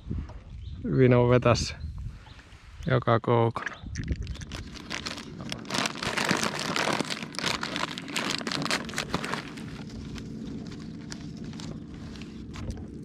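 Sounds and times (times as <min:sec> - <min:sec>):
dense irregular crackling: 0:04.4 - 0:13.0
rustling: 0:04.5 - 0:12.8.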